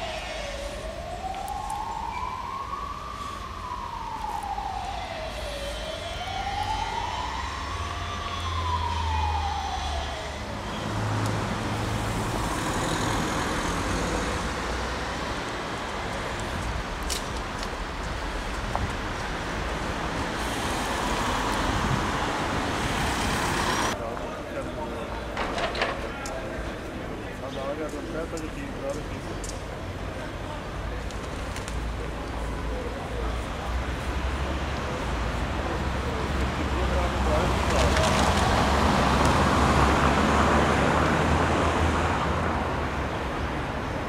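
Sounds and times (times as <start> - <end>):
emergency siren wailing: 0.0 - 24.0, 34.5 - 43.3
street traffic noise: 0.0 - 44.0.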